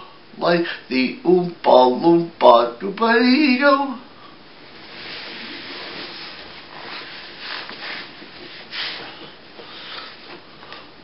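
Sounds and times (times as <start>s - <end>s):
cloth rustling and swishing: 4.6s - 9.4s.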